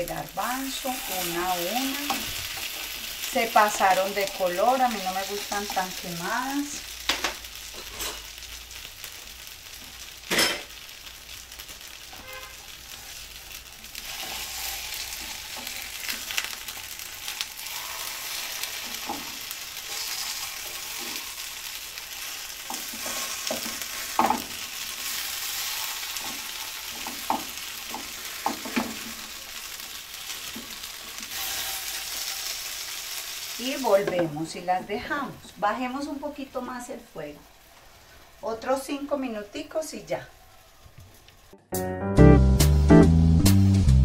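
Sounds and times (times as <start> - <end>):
patties sizzling in oil: 0.0 - 41.6
spatulas scraping a pan: 14.0 - 21.5, 22.1 - 29.2, 30.5 - 32.8.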